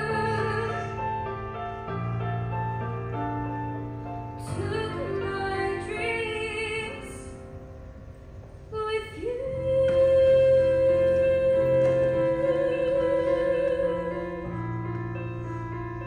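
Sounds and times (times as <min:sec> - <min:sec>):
woman singing a slow ballad: 0:00.0 - 0:01.0, 0:04.4 - 0:07.4, 0:08.7 - 0:14.7
soft sustained accompaniment: 0:00.0 - 0:16.0.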